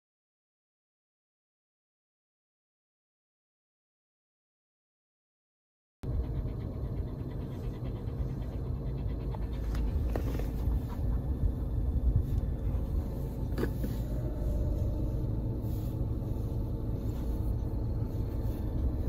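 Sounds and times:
small dog panting: 0:06.0 - 0:19.0
car cabin rumble: 0:06.1 - 0:19.0.

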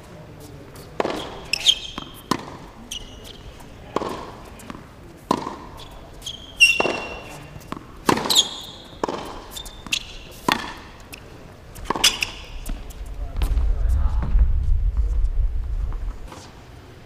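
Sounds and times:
shoes squeaking on court: 0:00.4 - 0:13.6
tennis ball struck and bouncing: 0:01.0 - 0:02.6, 0:03.9 - 0:05.8, 0:06.6 - 0:11.2, 0:11.8 - 0:13.0.

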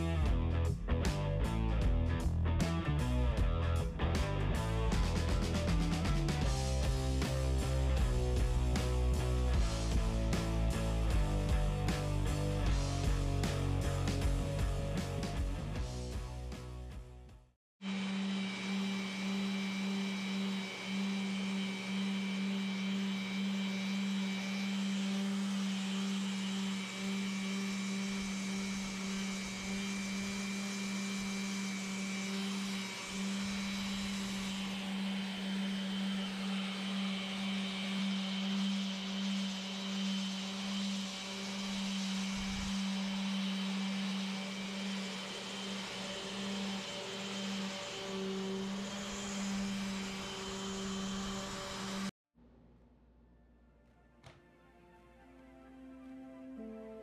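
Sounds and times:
power tool motor humming: 0:17.8 - 0:52.1.

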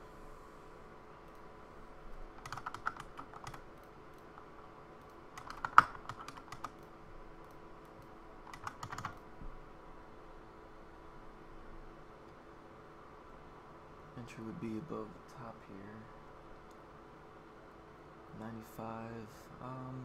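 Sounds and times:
keyboard keys clicking: 0:02.4 - 0:04.3, 0:05.0 - 0:09.2.

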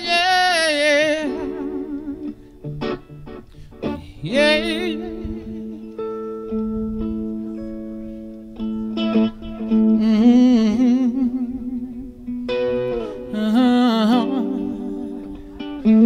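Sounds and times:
acoustic guitar: 0:00.0 - 0:16.0
electric bass: 0:12.4 - 0:13.6.

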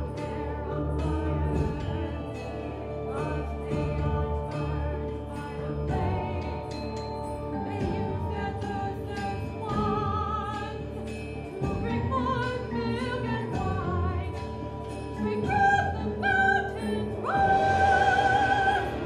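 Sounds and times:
instrumental accompaniment: 0:00.0 - 0:19.0
woman singing opera: 0:00.0 - 0:19.0.

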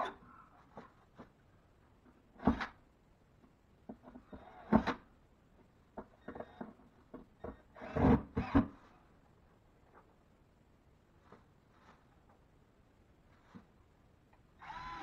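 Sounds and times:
cordless drill driving screws: 0:07.7 - 0:08.7, 0:14.6 - 0:15.0.

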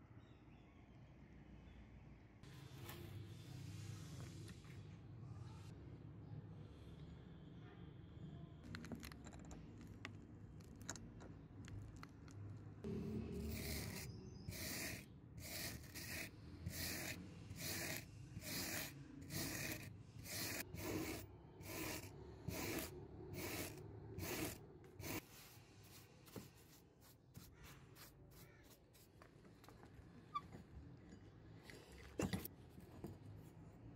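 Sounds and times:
wire brush scrubbing metal: 0:13.4 - 0:25.2.

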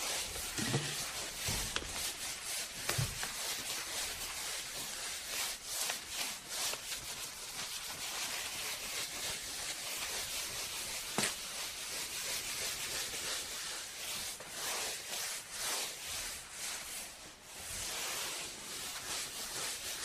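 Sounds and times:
rubbing strokes on tabletop: 0:00.0 - 0:20.0.

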